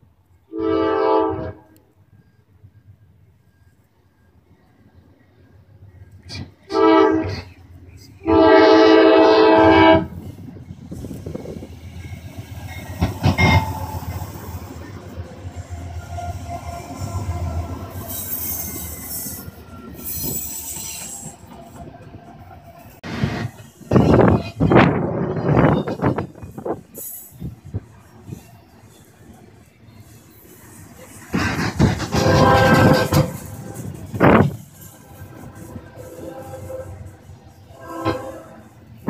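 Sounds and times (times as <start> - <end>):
locomotive air horn: 0.5 - 1.9, 6.4 - 7.5, 8.2 - 10.2, 13.2 - 14.1, 32.0 - 39.0
locomotives rumbling past: 6.2 - 39.0
wheels clicking over rails: 31.2 - 35.8.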